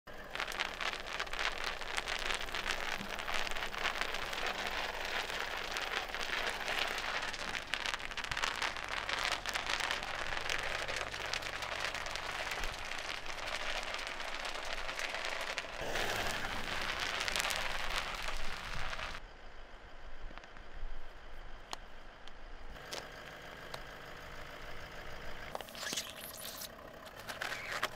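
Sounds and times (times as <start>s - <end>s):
bubble wrap popping under tyre: 0.1s - 19.2s, 25.5s - 27.9s.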